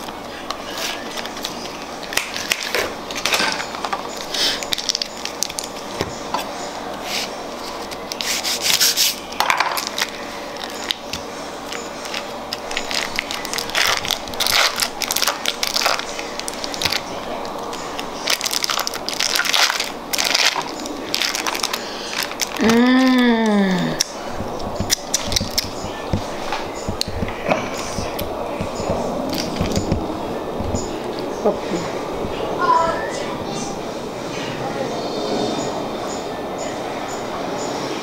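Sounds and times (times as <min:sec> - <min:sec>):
foil and paperboard crinkling: 0:00.6 - 0:02.8, 0:03.6 - 0:05.8, 0:07.1 - 0:31.0.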